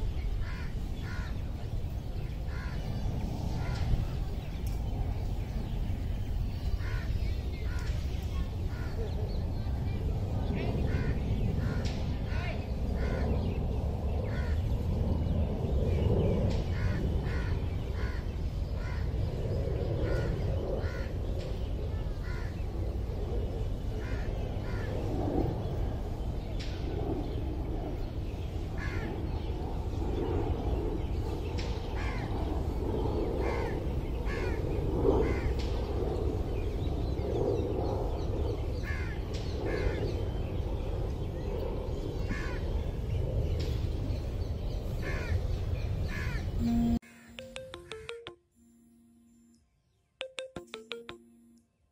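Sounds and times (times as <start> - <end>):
crows cawing: 16.8 - 19.0, 28.8 - 29.1, 33.4 - 34.6, 35.2 - 35.5, 45.0 - 45.4.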